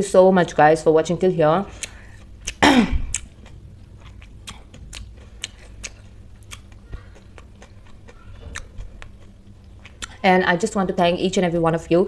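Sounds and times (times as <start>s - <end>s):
low hum: 0.0s - 12.0s
chewing mouth clicks: 1.7s - 10.2s.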